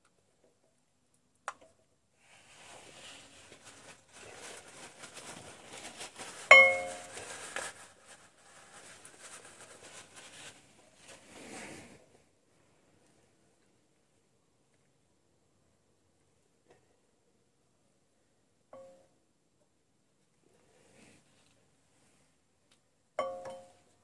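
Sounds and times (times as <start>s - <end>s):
cloth rag rustling: 2.2s - 12.8s.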